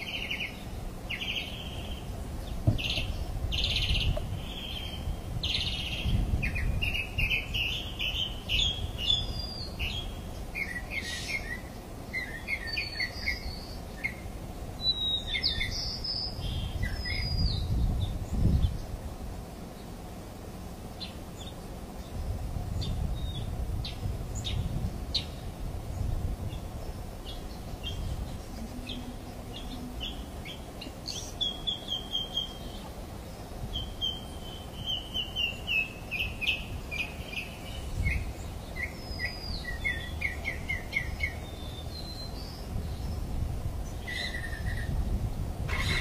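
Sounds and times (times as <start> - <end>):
birds chirping and calling: 0.0 - 19.0, 20.6 - 46.0
steady low rumble: 13.4 - 46.0.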